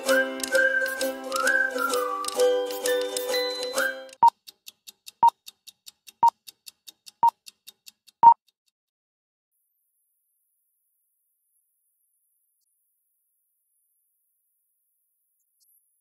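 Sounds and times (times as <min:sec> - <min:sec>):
whistled tune: 0:00.0 - 0:04.3
projector-like ticking: 0:00.0 - 0:08.4.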